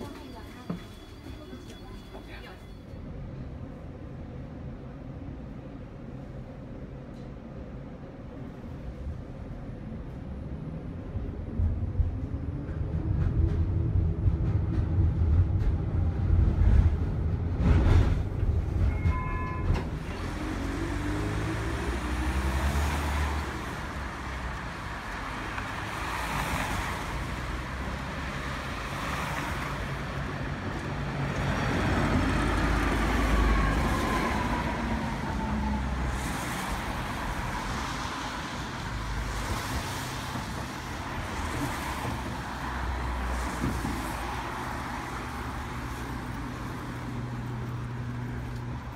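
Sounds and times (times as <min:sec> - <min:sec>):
road traffic: 0:00.0 - 0:48.9
tram rumbling and humming: 0:00.0 - 0:48.9
cars passing: 0:13.6 - 0:48.9.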